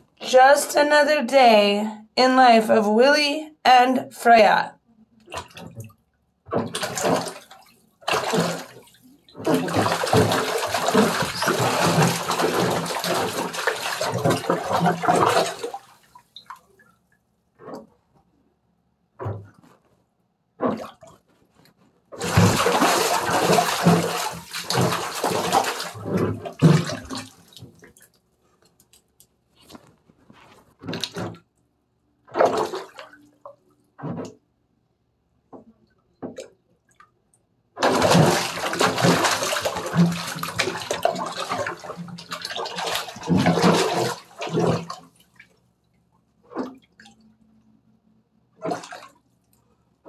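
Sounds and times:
bare feet splashing in water: 6.5s - 16.7s, 22.2s - 28.1s, 30.7s - 31.4s, 32.3s - 33.2s, 37.8s - 45.1s, 48.6s - 49.1s.

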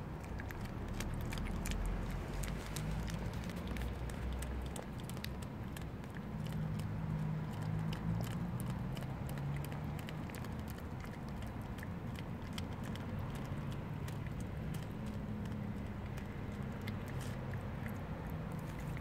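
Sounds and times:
cat chewing and licking: 0.0s - 19.0s.

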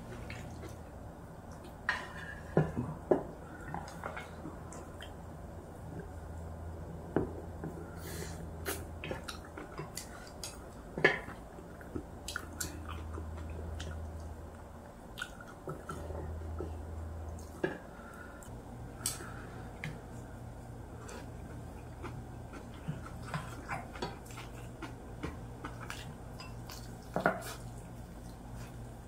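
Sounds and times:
low steady hum: 0.0s - 29.0s
people chewing and sucking: 21.0s - 28.9s.

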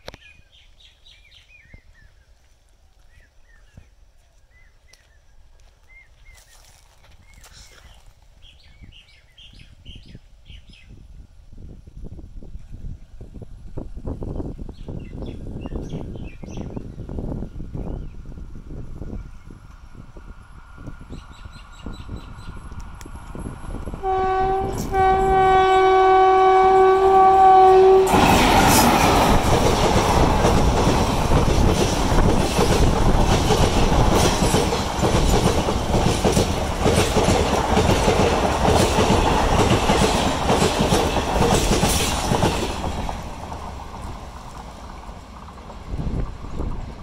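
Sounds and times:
locomotive horn: 24.0s - 28.4s.

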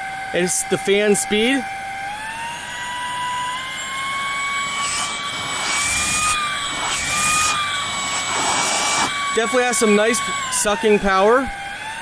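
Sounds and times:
vacuum motor whining: 0.0s - 12.0s
rushes of air: 4.4s - 9.5s.

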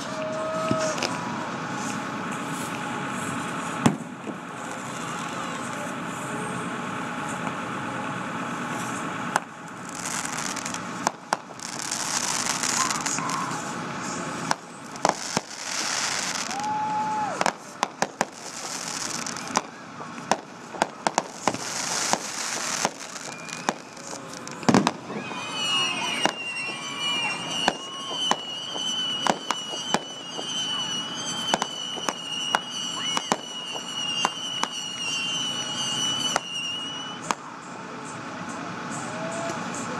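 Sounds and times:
fireworks bangs: 0.0s - 6.3s, 8.6s - 37.6s
fireworks hissing and crackling: 0.0s - 39.9s
high steady whistling: 9.6s - 39.9s.

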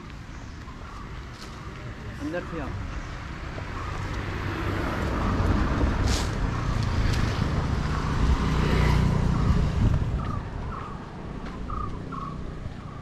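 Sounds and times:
motor vehicle passing: 3.5s - 13.0s.

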